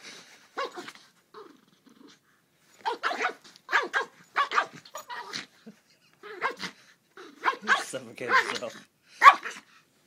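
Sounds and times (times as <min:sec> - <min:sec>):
small dog barking: 0:02.8 - 0:05.4, 0:07.4 - 0:09.6.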